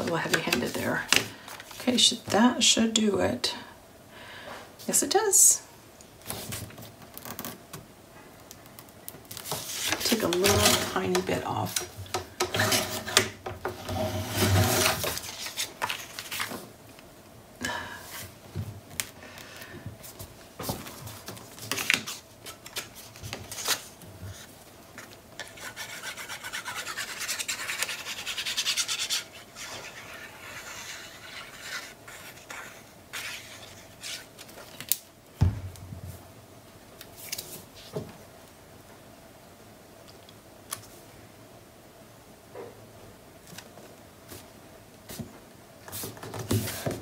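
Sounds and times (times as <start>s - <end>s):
paper rubbing: 25.4s - 34.3s.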